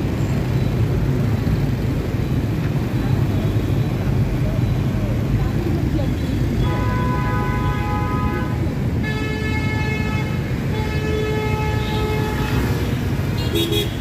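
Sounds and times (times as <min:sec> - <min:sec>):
motorbike and car traffic rumbling: 0:00.0 - 0:14.0
held vehicle horn: 0:06.6 - 0:14.0
lower vehicle horn: 0:06.6 - 0:14.0.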